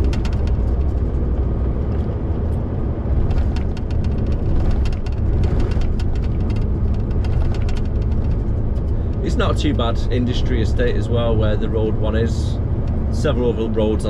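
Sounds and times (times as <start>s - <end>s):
light clicks and rattles: 0.0s - 11.1s
lorry engine and tyres rumbling: 0.0s - 14.0s.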